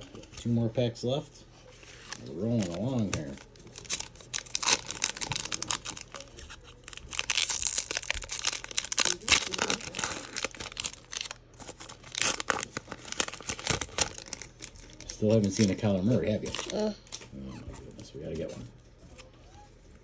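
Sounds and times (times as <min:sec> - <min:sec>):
foil wrapper crinkling and ripping: 0:01.8 - 0:17.2.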